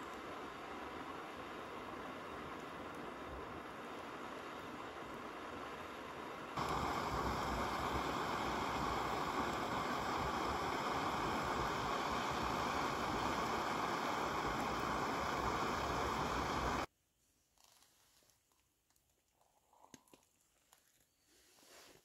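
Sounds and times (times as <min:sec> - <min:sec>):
gas stove burning with steady hiss: 0:00.0 - 0:16.9.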